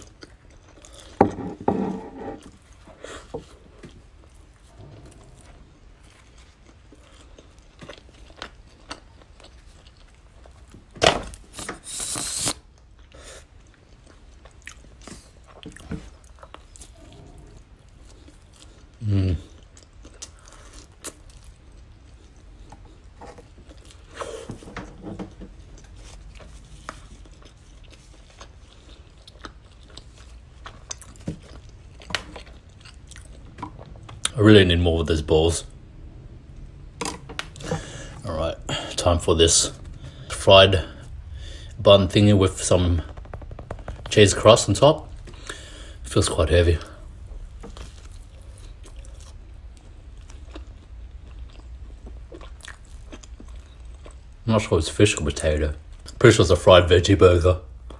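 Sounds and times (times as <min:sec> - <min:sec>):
person chewing food: 0:00.0 - 0:01.5, 0:02.3 - 0:10.9, 0:11.5 - 0:34.4, 0:46.8 - 0:54.4
brief hiss: 0:11.5 - 0:12.6.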